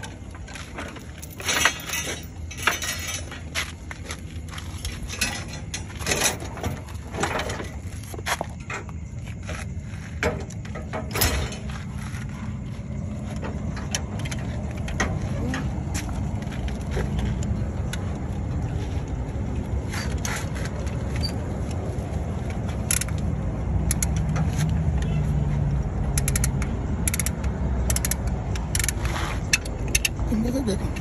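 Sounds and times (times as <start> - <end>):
metallic clinks and scrapes: 0.0 - 15.7
vehicle engine rumbling: 0.0 - 31.0.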